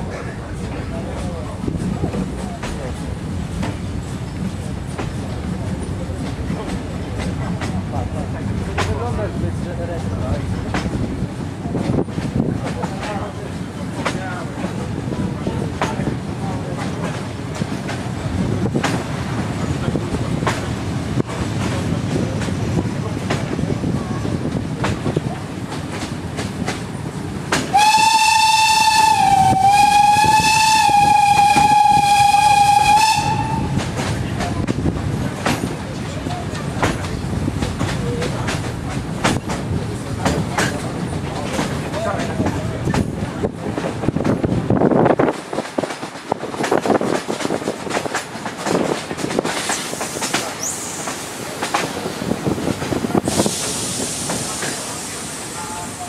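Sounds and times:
wheels clattering on rails: 0.0s - 56.0s
locomotive whistle: 27.7s - 33.8s
loud hiss: 49.6s - 56.0s.

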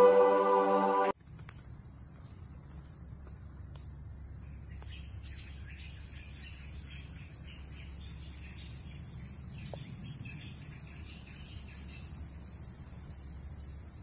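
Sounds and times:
small birds chirping: 3.4s - 14.0s.

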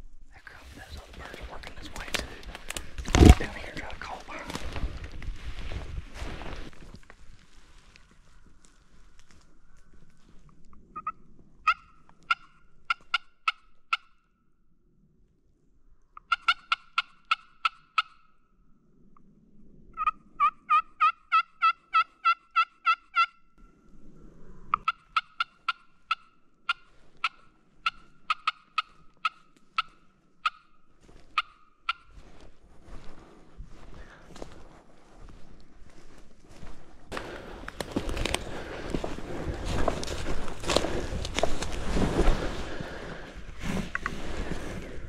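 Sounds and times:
turkey yelping: 20.0s - 23.4s, 24.8s - 30.7s, 31.4s - 32.0s.

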